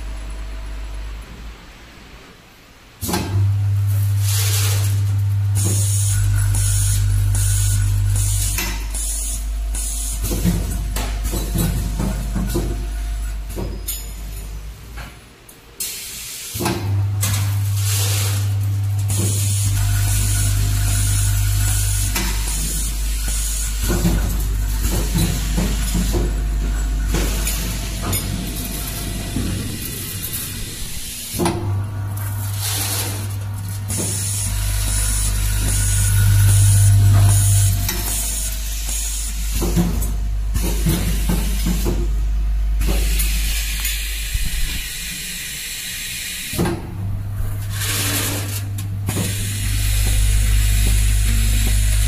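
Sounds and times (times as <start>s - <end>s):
machine hiss: 3.0s - 15.0s, 15.7s - 42.2s, 42.8s - 46.8s, 47.6s - 52.0s
vibratory feeder humming: 16.9s - 45.7s, 47.0s - 52.0s
sharp machine knock: 20.2s - 30.5s.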